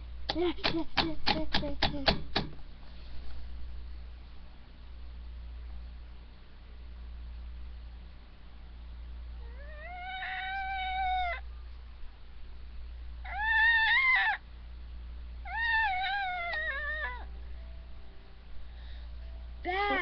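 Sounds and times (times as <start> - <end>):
cat meowing: 9.5 - 11.4, 13.3 - 14.4, 15.5 - 17.3.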